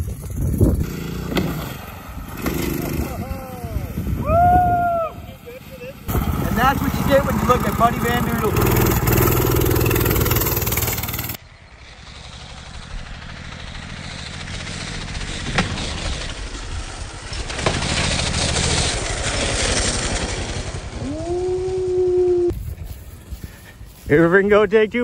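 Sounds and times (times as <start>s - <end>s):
minibike engine running: 5.4s - 22.5s.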